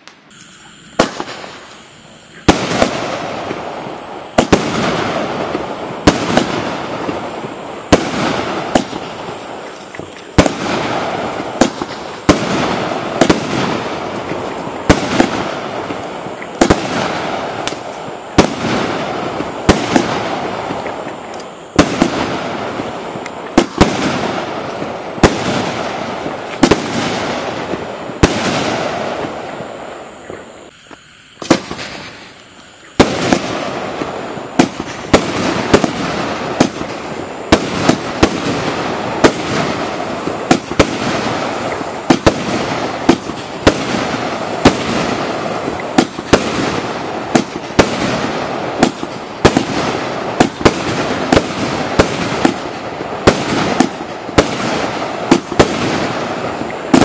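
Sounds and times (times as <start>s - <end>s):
firework bangs: 0.0s - 30.7s, 31.3s - 57.0s
firework crackle: 0.0s - 57.0s.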